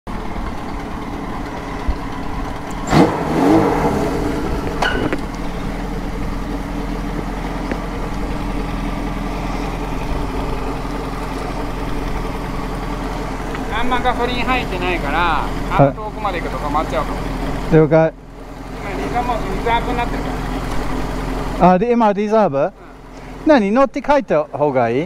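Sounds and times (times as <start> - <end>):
motorcycle engine idling: 0.1 - 25.0
engine revving: 0.8 - 21.8.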